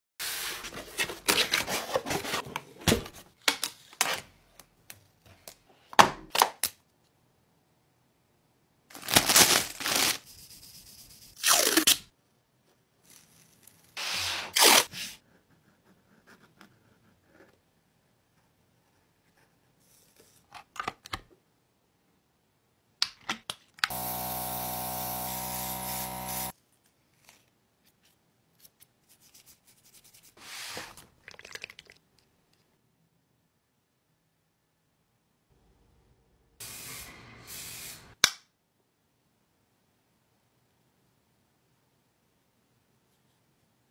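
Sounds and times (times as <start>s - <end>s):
small machine buzzing: 23.9s - 26.5s.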